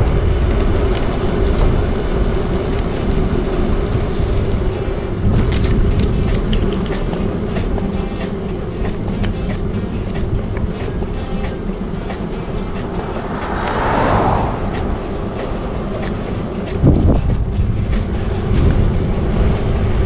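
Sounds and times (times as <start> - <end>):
bicycle tyre and drivetrain noise: 0.0 - 20.0
bike clicks and rattles: 5.2 - 12.4
wind rushing over microphone: 12.3 - 20.0.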